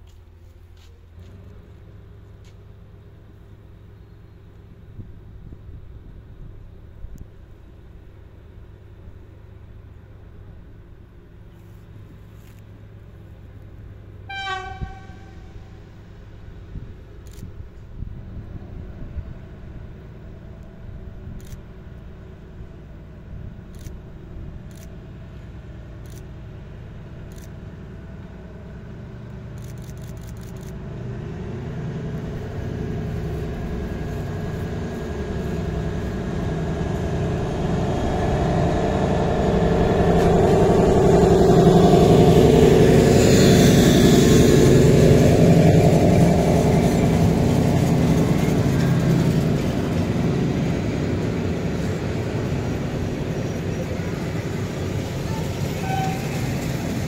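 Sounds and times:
diesel locomotive engine: 0:00.0 - 0:57.0
train cars rolling: 0:00.0 - 0:57.0.

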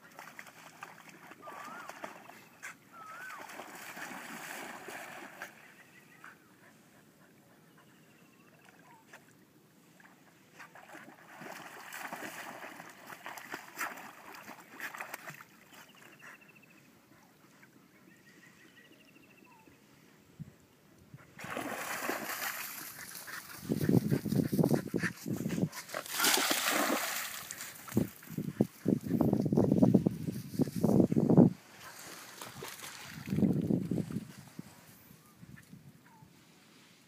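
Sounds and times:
dog splashing through water: 0:00.0 - 0:02.4, 0:03.2 - 0:05.6, 0:10.8 - 0:15.6, 0:21.4 - 0:24.8, 0:25.8 - 0:28.5, 0:32.0 - 0:33.6.

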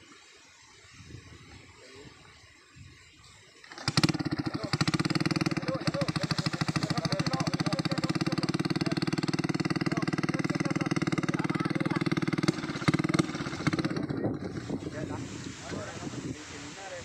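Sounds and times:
small motorcycle engine running: 0:03.6 - 0:16.4
engine knocks: 0:03.7 - 0:15.0.

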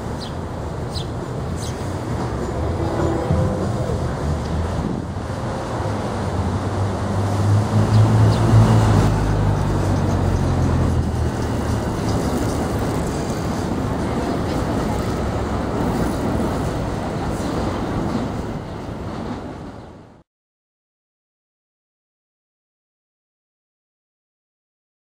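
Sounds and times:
steady rushing noise: 0:00.0 - 0:19.9
road traffic passing: 0:00.0 - 0:20.1
subway train on elevated track: 0:00.0 - 0:20.2.

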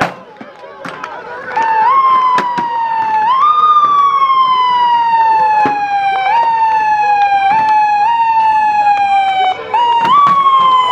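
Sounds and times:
cycling siren: 0:01.3 - 0:10.9.

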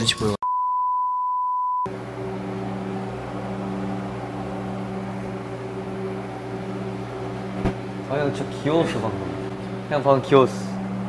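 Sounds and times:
steady beep tone: 0:00.4 - 0:01.9
low machine hum: 0:01.9 - 0:11.0.

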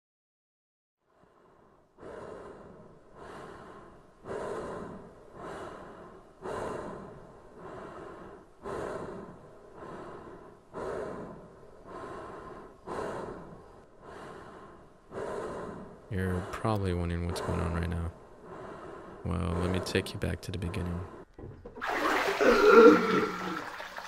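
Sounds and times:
man breathing hard: 0:01.1 - 0:20.0.

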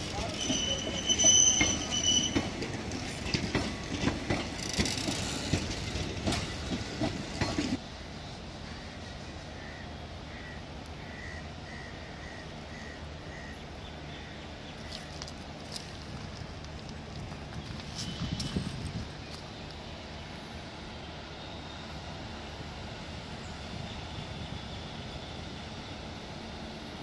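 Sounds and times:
high wheel squeal: 0:00.0 - 0:02.6
train wheels clattering over rail joints: 0:00.0 - 0:07.8
outdoor background: 0:00.0 - 0:27.0.

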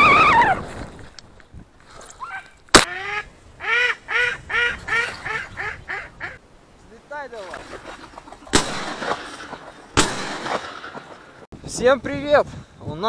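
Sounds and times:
duck quacking: 0:02.3 - 0:06.4
sharp crack: 0:02.6 - 0:02.9, 0:08.4 - 0:11.5.

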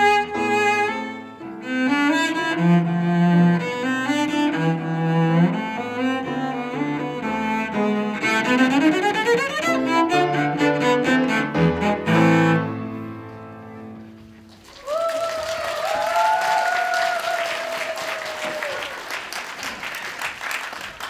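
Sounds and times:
solo cello playing: 0:00.0 - 0:14.2
audience applause: 0:14.4 - 0:21.0
person cheering: 0:14.7 - 0:19.1.

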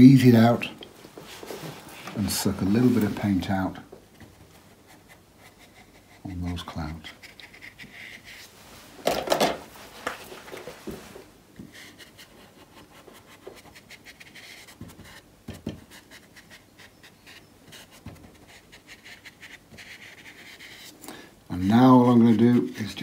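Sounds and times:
brush scratching on paper: 0:04.5 - 0:08.6, 0:11.7 - 0:21.0, 0:21.7 - 0:23.0.

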